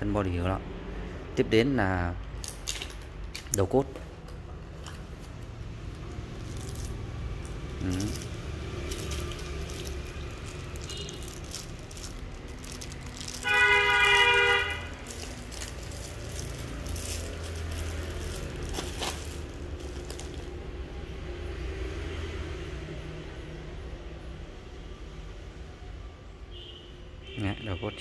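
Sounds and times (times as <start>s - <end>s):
plastic packaging crinkling: 4.8s - 20.7s
loud horn-like tone: 10.8s - 11.3s, 13.4s - 14.9s.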